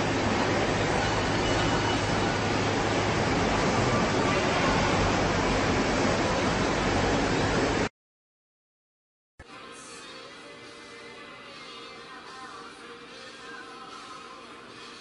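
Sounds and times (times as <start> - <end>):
steady rushing noise: 0.0 - 7.9.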